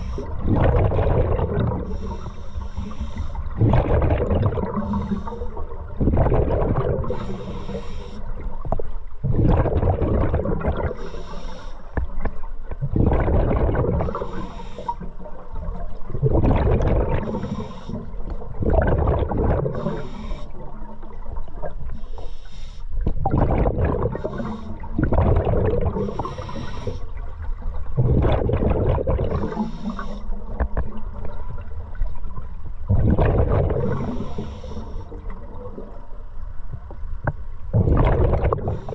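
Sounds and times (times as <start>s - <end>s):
exhaled bubbles rushing: 0.0s - 2.2s, 3.4s - 7.4s, 9.2s - 11.1s, 12.8s - 14.4s, 15.3s - 17.6s, 18.4s - 21.8s, 23.1s - 26.5s, 27.4s - 36.0s, 37.7s - 38.9s
regulator hissing inhale: 1.8s - 3.5s, 4.8s - 5.7s, 7.1s - 8.5s, 11.0s - 12.0s, 14.0s - 15.3s, 17.2s - 18.4s, 19.7s - 20.7s, 21.9s - 23.0s, 26.0s - 27.2s, 29.4s - 30.6s, 33.9s - 35.5s.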